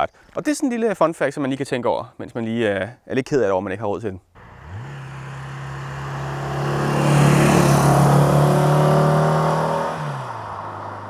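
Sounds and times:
car engine driving past: 4.4 - 11.0.

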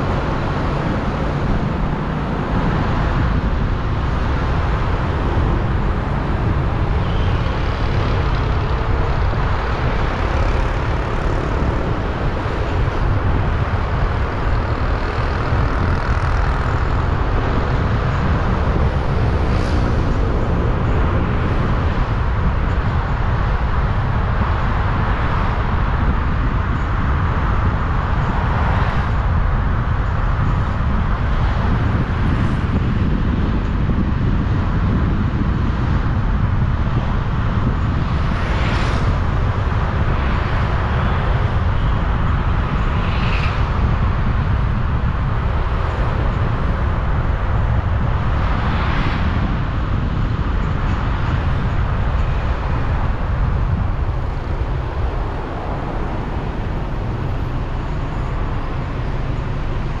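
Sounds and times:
traffic rumble: 0.0 - 60.0
vehicles passing close by: 0.0 - 60.0.

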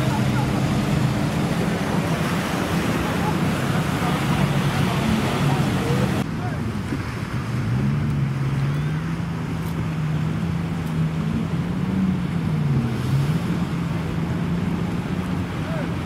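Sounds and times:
steady background rush: 0.0 - 8.1
engine running: 0.0 - 16.0.

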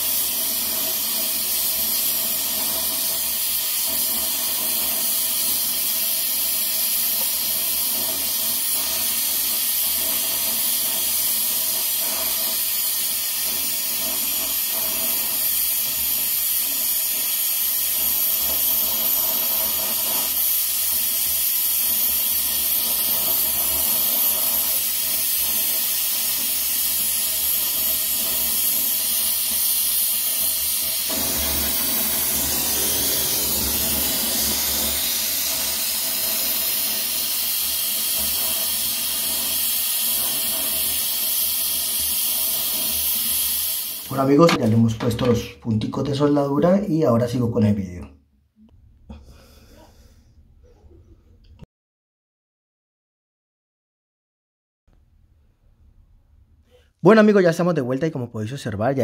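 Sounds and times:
welding torch hissing: 0.0 - 46.4.

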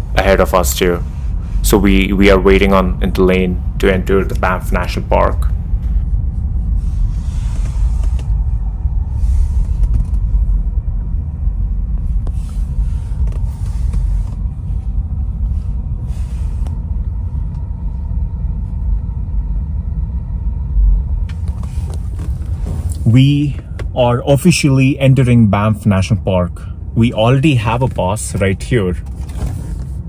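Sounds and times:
car cabin low rumble: 0.0 - 30.0.

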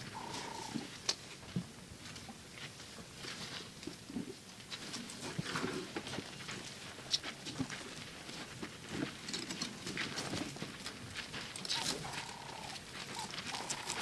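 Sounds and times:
short mid-pitched animal call: 0.1 - 0.9, 11.8 - 14.0.

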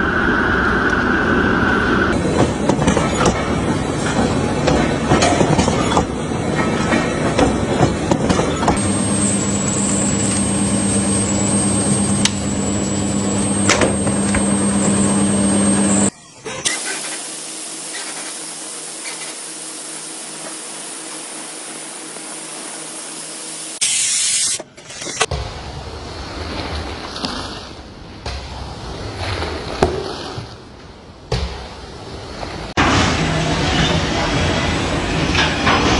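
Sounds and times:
machine hum with high whine: 0.0 - 26.6
loud burst of noise: 8.6 - 26.1
hissing spray: 16.7 - 24.6.

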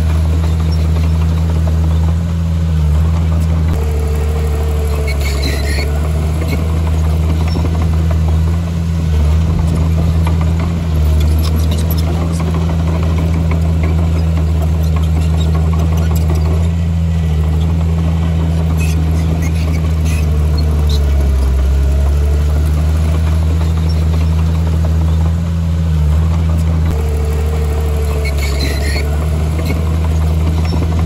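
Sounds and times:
diesel engine droning: 0.0 - 31.0
short high squeaks: 3.8 - 8.0, 11.0 - 17.8, 18.4 - 24.7, 26.6 - 31.0.

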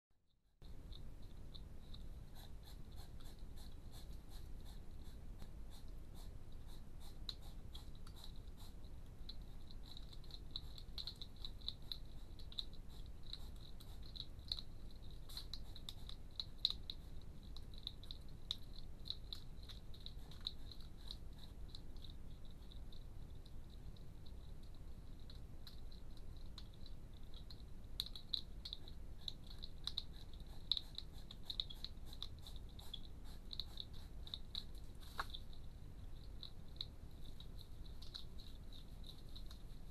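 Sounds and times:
low steady rumble: 0.5 - 39.9
hedgehogs crunching food: 0.6 - 39.9.

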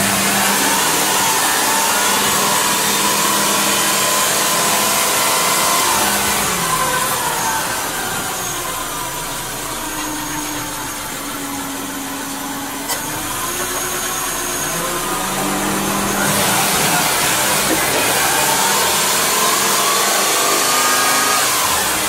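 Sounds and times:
car engine idling: 0.0 - 22.0.

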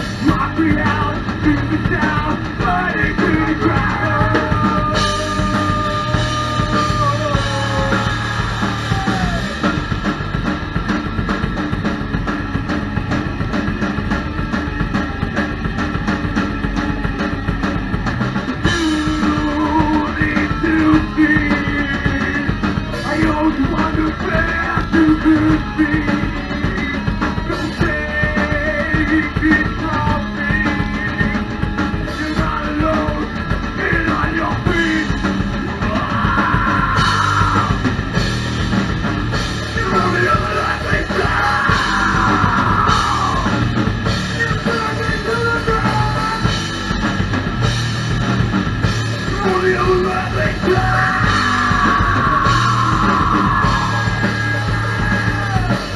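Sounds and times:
bass guitar: 0.0 - 55.9
drum kit: 0.0 - 55.9
electric guitar: 0.0 - 55.9
person singing: 0.2 - 9.7, 18.6 - 37.9, 39.7 - 43.7, 44.4 - 46.5, 49.3 - 55.9.

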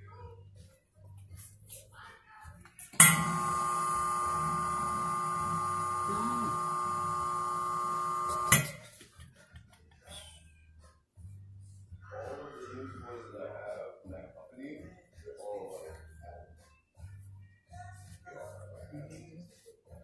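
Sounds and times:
steamer switch click: 3.0 - 3.8
steamer hissing with whistle: 3.1 - 8.6.

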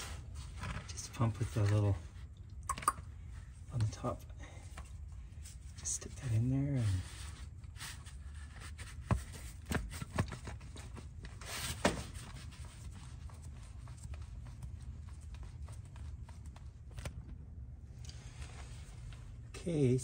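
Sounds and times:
low steady rumble: 12.1 - 20.0.

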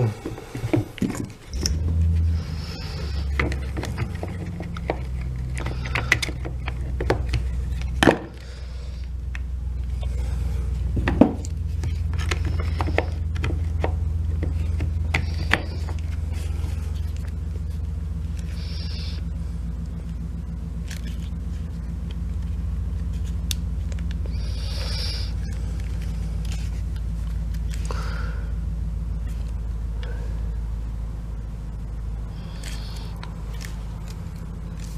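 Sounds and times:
steady low hum: 0.0 - 34.9
plastic parts clicking and knocking: 3.2 - 8.4, 11.0 - 17.3.

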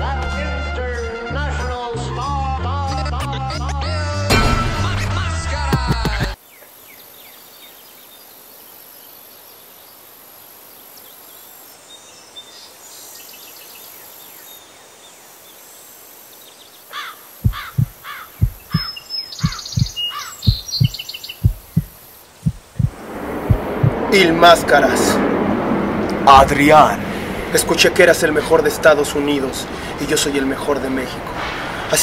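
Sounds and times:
faint outdoor background noise: 6.2 - 32.0
deep thumps: 17.4 - 24.1.

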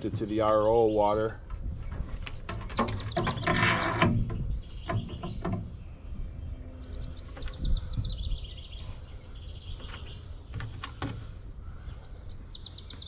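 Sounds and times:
bird chirping: 0.0 - 13.0
metal scrape: 2.6 - 4.2.

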